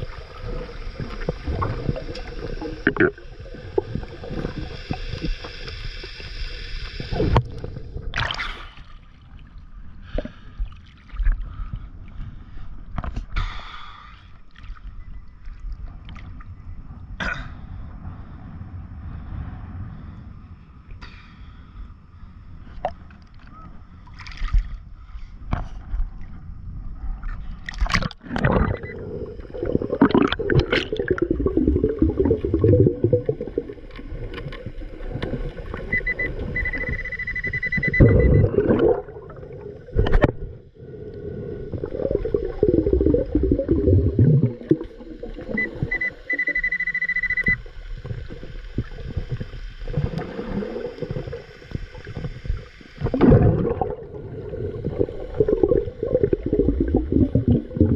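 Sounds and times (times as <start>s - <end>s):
air bubbles gurgling underwater: 0.0s - 6.2s, 27.7s - 36.9s, 37.8s - 46.2s, 48.0s - 57.9s
diver breathing through regulator: 11.4s - 14.4s, 40.3s - 44.8s
metal detector high beep: 35.9s - 38.6s, 45.5s - 47.6s.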